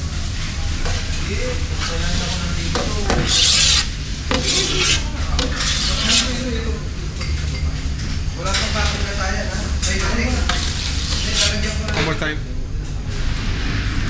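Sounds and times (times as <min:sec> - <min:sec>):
steady low hum: 0:00.0 - 0:14.0
metal scoop scraping steel bowl: 0:03.2 - 0:06.4.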